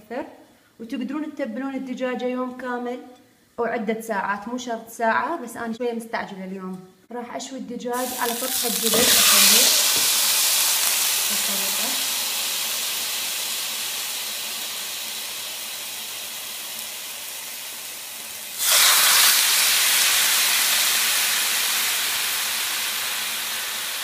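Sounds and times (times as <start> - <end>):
chicken sizzling in a pan: 8.0 - 24.0.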